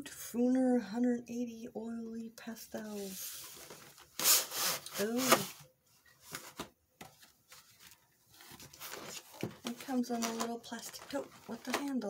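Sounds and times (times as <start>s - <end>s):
packaging rubbing and scraping: 3.0s - 5.6s, 7.5s - 12.0s.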